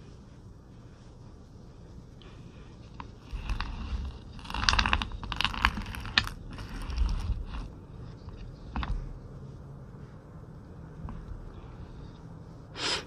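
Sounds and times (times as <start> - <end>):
crunchy snacks crackling: 3.3 - 7.7.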